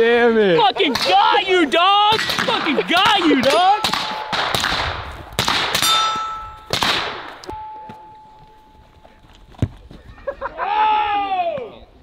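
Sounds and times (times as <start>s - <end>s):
gunshots: 2.1s - 7.6s
steel targets clanging and ringing: 2.2s - 4.6s, 5.7s - 6.8s, 7.5s - 9.0s.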